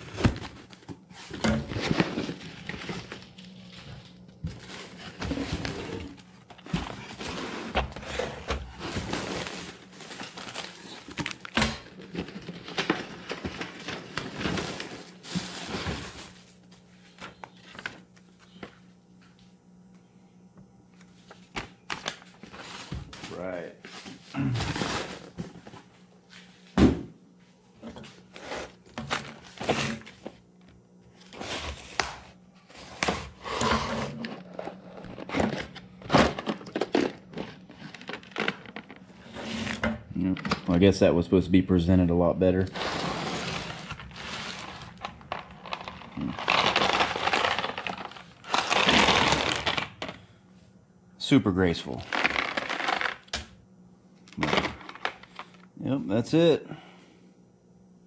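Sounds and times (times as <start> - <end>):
cardboard and plastic packaging rustling: 0.0 - 18.7, 21.1 - 26.7, 34.1 - 39.1, 42.5 - 50.2
faint steady hum: 0.0 - 58.0.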